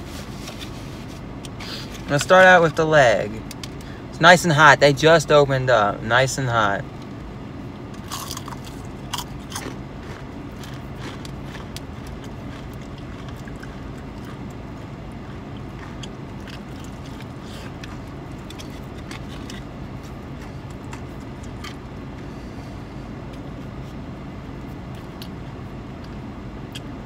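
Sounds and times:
car engine hum inside cabin: 0.0s - 27.0s
person chewing crunchy food: 7.9s - 27.0s.

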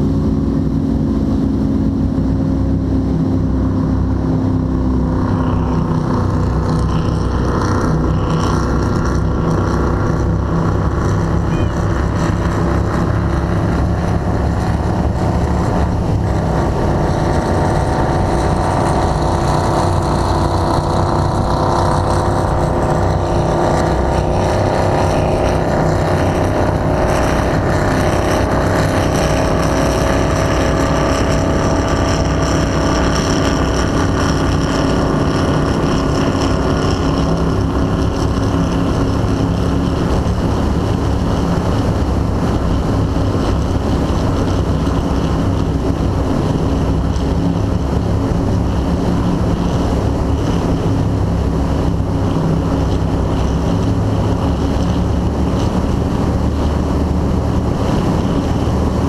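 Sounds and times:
hull rushing across water: 0.0s - 59.0s
powerboat engines at high speed: 0.0s - 59.0s.

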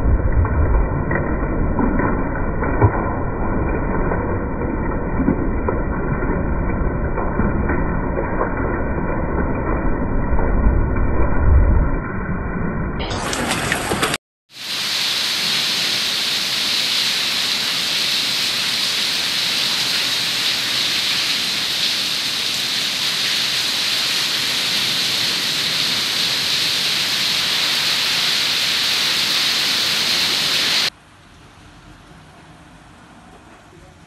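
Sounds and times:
heavy rain and hail pelting: 13.0s - 30.9s.

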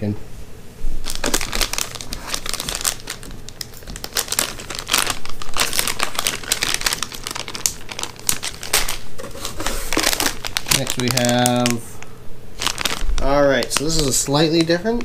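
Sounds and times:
plastic bag crinkling: 1.0s - 15.0s.

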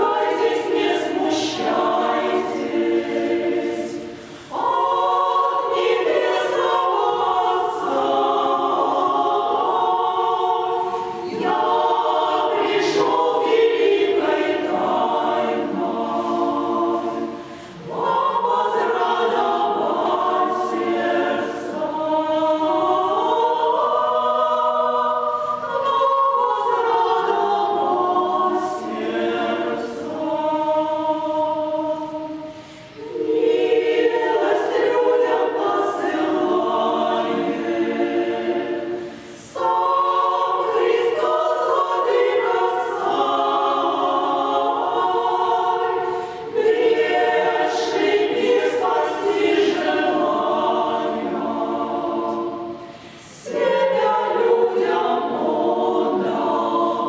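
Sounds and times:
women's choir singing a cappella: 0.0s - 57.0s
singers breathing: 4.0s - 4.6s, 17.3s - 17.9s, 32.4s - 33.0s, 38.9s - 39.6s, 46.0s - 46.5s, 52.7s - 53.5s.

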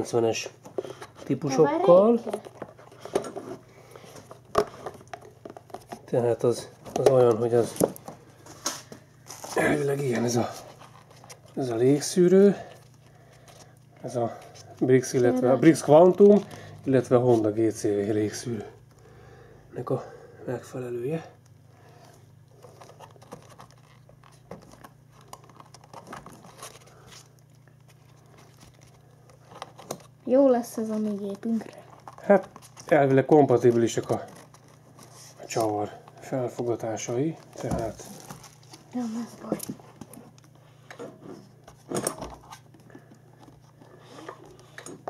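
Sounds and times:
hands tapping and rustling plastic: 2.0s - 11.6s, 22.6s - 30.2s.

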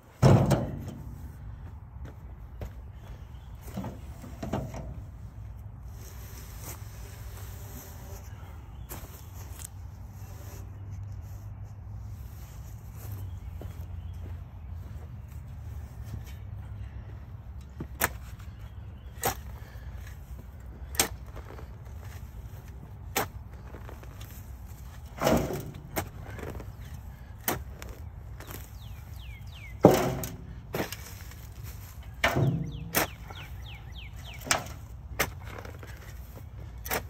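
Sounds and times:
tool knocking and thudding: 0.2s - 1.2s, 29.8s - 30.5s, 32.2s - 33.2s.

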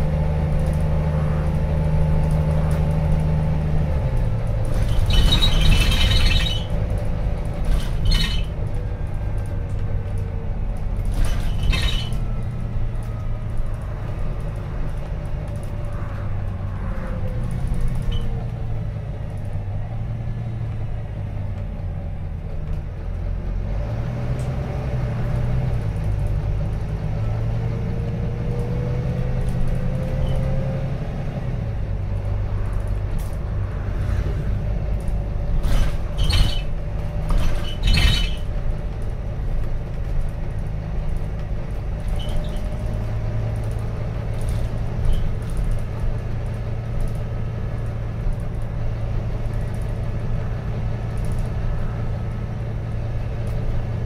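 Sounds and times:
bus diesel engine running: 0.0s - 54.0s
bus fittings rattling: 4.0s - 15.9s, 34.6s - 54.0s.

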